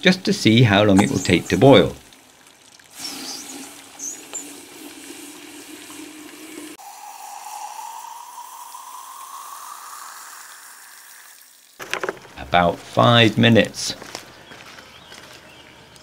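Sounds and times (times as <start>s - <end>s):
water pouring into a pipe: 1.0s - 12.4s
rising filling note: 6.8s - 11.4s.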